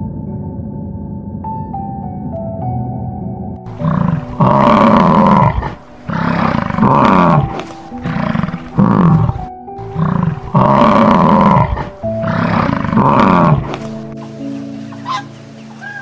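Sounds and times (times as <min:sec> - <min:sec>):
background music: 0:00.0 - 0:16.0
bison roaring: 0:03.7 - 0:14.1.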